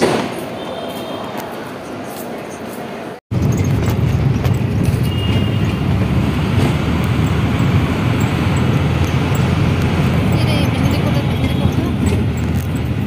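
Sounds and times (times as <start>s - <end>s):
vehicle rumble from inside cabin: 3.4s - 13.0s.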